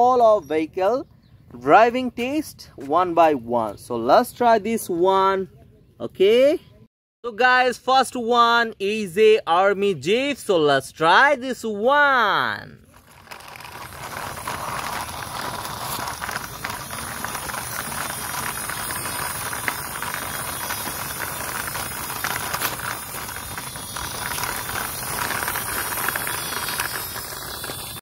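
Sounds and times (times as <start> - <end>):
toy car rolling over sand: 12.8 - 28.0.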